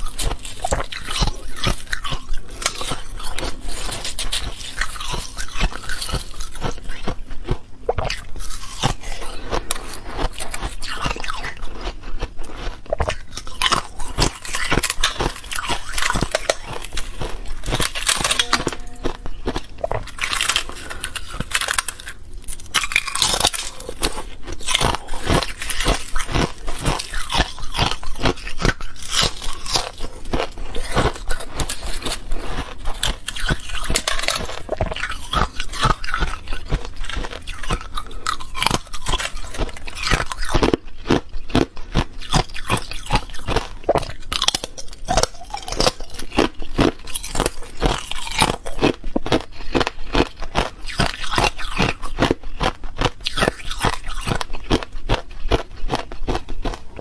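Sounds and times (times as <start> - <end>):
ice cracking and crunching: 13.0 - 41.6.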